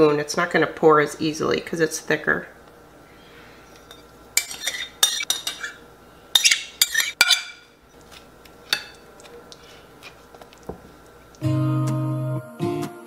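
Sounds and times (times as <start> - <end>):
metal spoon scraping ceramic dish: 3.8 - 5.8, 6.4 - 7.6.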